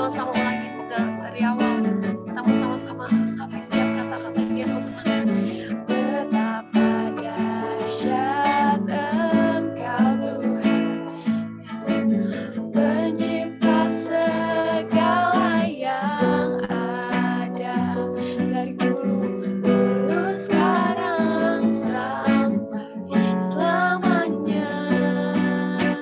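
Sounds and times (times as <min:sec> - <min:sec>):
strummed acoustic guitar: 0:00.0 - 0:26.0
woman singing: 0:00.0 - 0:26.0.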